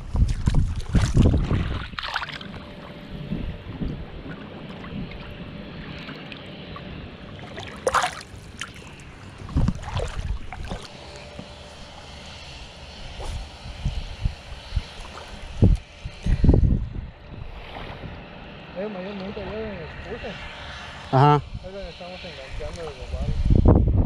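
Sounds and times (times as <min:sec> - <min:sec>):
wind rumbling on microphone: 0:00.0 - 0:24.0
fish splashing into water: 0:00.2 - 0:02.6, 0:07.3 - 0:11.2.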